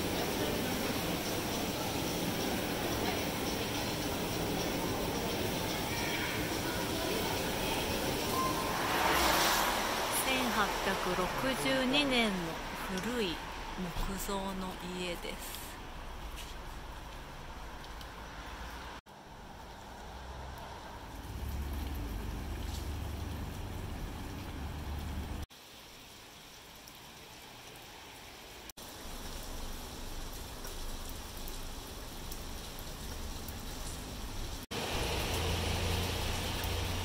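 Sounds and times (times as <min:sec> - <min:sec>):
low rumble of distant traffic: 0:00.0 - 0:25.4.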